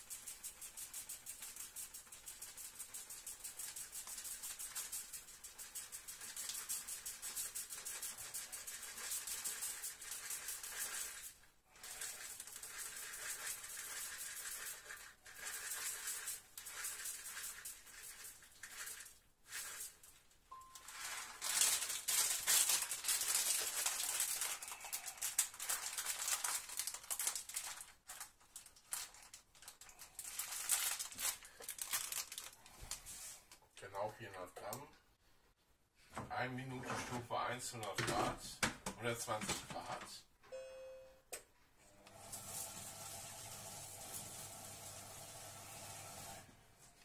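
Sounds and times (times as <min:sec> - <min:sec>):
plastic bag crinkling: 0:16.8 - 0:33.6
rice pouring into metal bowl: 0:42.1 - 0:46.4.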